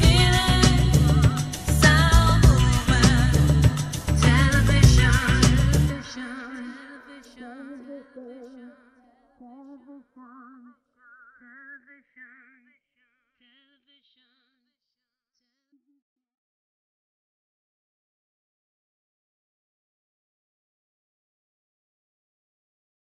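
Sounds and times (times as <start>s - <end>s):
backing music: 0.0s - 6.1s.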